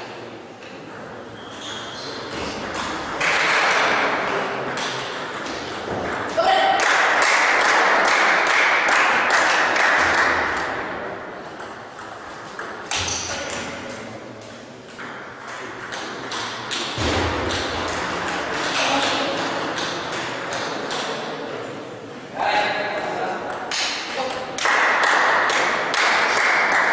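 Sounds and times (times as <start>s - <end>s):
table tennis balls clicking: 2.5s - 6.4s, 14.8s - 22.2s.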